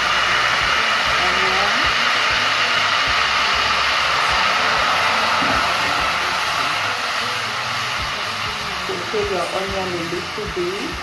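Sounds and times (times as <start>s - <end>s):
onion sizzling in hot oil: 0.0s - 11.0s.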